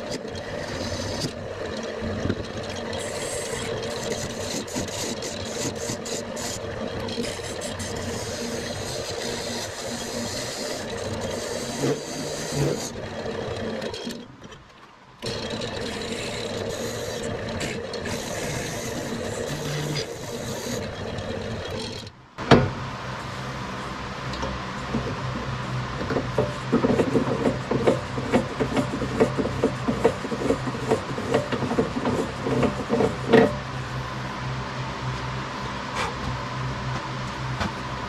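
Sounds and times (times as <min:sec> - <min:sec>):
lathe motor hum: 0:00.0 - 0:14.5, 0:15.2 - 0:22.2, 0:22.8 - 0:38.0
chisel scraping spinning wood: 0:00.0 - 0:14.6, 0:15.2 - 0:22.1, 0:24.4 - 0:33.7.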